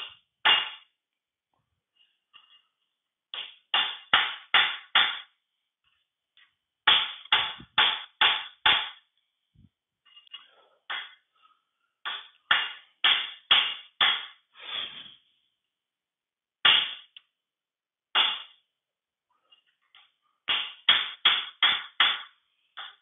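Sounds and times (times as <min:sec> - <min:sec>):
hammer striking steel punch: 0:06.9 - 0:09.0, 0:18.1 - 0:18.6.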